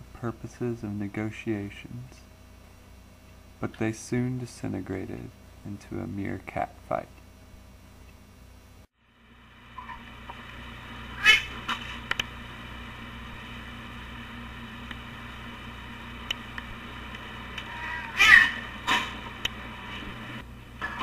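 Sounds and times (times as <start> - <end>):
camera microphone hum: 0.0 - 21.0
cats crying: 11.2 - 11.6, 17.6 - 18.8
small clicks: 12.0 - 12.3, 16.2 - 17.7.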